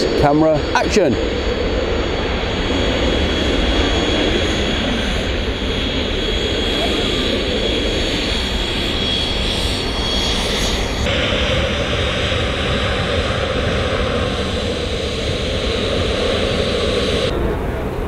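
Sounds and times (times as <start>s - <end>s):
jet engines roaring: 0.0s - 18.0s
high thin whine: 8.9s - 17.3s.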